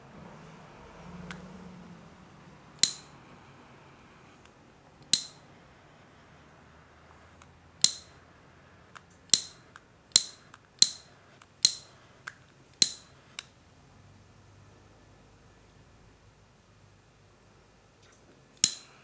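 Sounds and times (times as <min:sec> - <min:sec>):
plastic spotlight clicks: 0:02.8 - 0:03.1, 0:05.0 - 0:05.4, 0:07.8 - 0:08.2, 0:09.0 - 0:13.5, 0:18.0 - 0:19.0.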